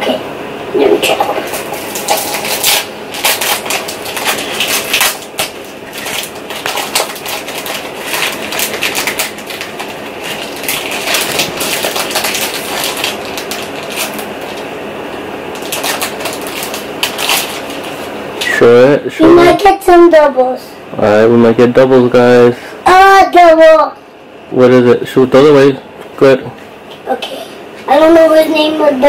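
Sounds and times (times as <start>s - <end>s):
foil wrapper crinkling: 1.5s - 14.7s, 15.5s - 18.5s.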